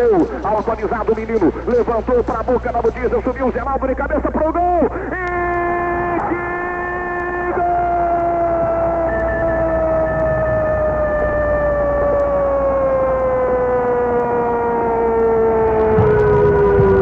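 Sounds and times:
low hum: 0.0 - 17.0
droning tone gliding down: 5.2 - 17.0.

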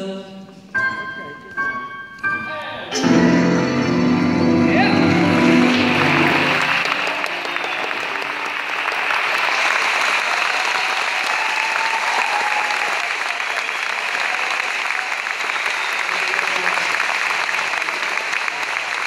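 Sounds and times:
audience applauding: 3.8 - 19.0.

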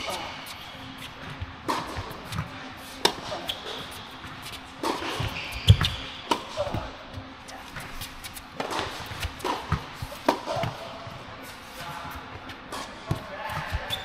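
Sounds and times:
tennis racket strikes: 0.0 - 6.9, 7.7 - 10.8
tennis ball bounces: 1.4 - 7.3, 8.6 - 10.8.

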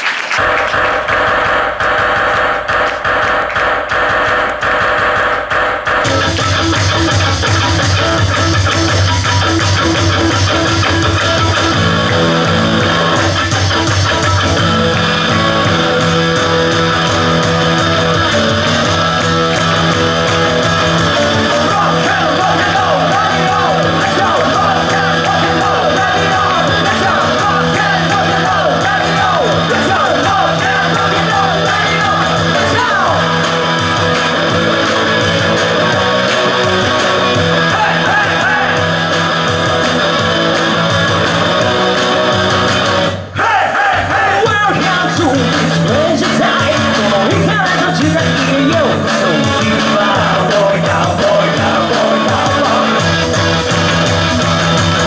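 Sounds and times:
live rock band playing: 6.0 - 43.3, 44.6 - 55.0
man singing: 21.1 - 35.9, 36.5 - 39.2, 43.3 - 53.5.

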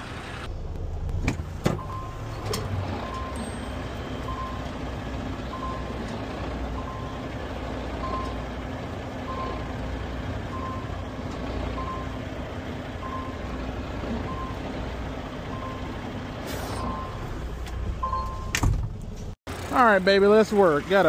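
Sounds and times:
diesel truck engine rumbling: 0.0 - 21.0
reversing alarm beeping: 1.8 - 6.0, 6.7 - 7.3, 8.0 - 8.4, 9.2 - 9.7, 10.5 - 12.2, 12.9 - 13.5, 14.2 - 14.7, 15.5 - 16.0, 16.7 - 17.3, 18.0 - 18.6.

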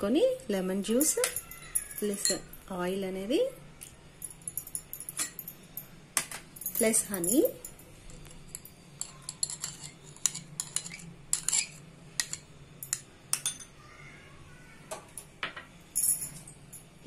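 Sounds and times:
spoon clinking against glass bowls: 0.9 - 2.7, 3.8 - 13.8.

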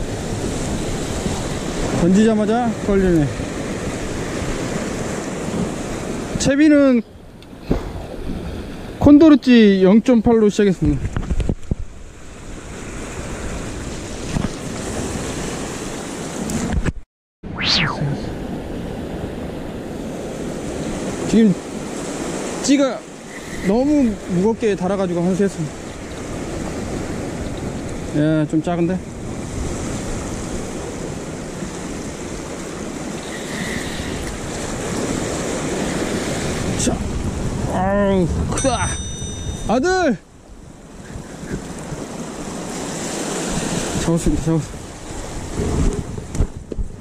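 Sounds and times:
surf washing against rocks: 0.0 - 7.0, 18.5 - 40.1, 40.8 - 47.0
wind on microphone: 10.8 - 22.5, 29.1 - 39.8, 40.5 - 47.0
short sharp swish: 17.5 - 18.4.

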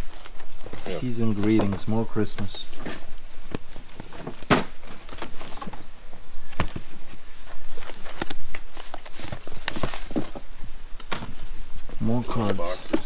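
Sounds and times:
pages rustling: 0.0 - 13.0.

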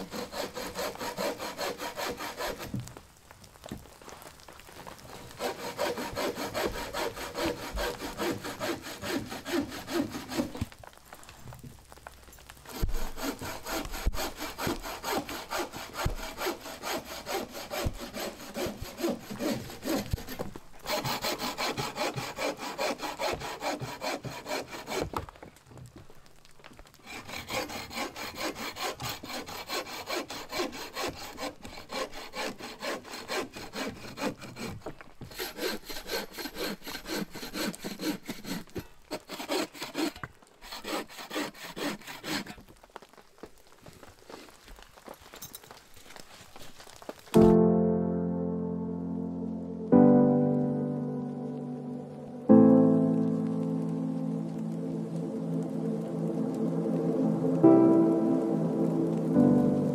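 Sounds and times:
hand saw cutting wood: 0.0 - 2.8, 5.1 - 10.7, 12.7 - 25.4, 27.0 - 42.7.

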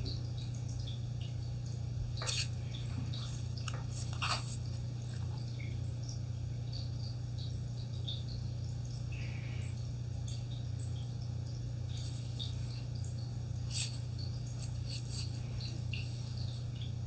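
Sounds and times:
steady low hum: 0.0 - 17.0
paper box rustling: 3.8 - 4.8.

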